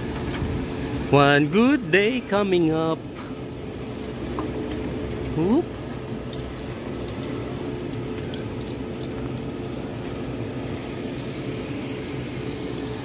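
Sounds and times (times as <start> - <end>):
low motor hum: 0.0 - 13.0
faint metallic clinks: 6.2 - 10.3.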